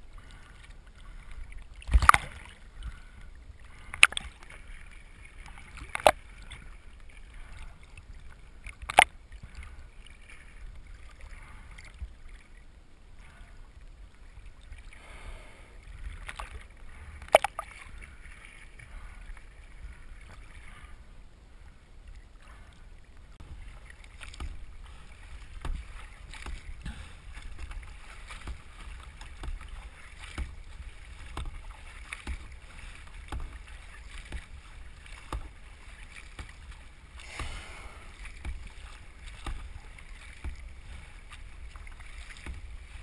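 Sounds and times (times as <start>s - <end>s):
water lapping against kayak hull: 0.0s - 43.0s
small knocks and splashes: 1.0s - 12.4s, 16.1s - 19.4s, 23.4s - 43.0s.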